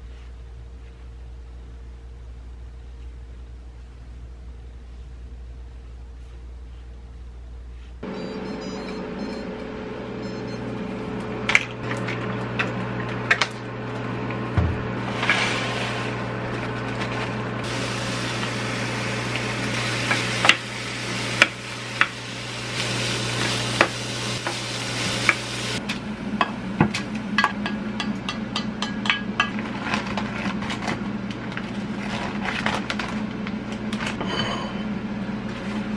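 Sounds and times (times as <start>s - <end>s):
steady low hum: 0.0s - 35.9s
rice sizzling in a pan: 15.0s - 25.8s
utensils tapping a pan: 26.8s - 29.6s.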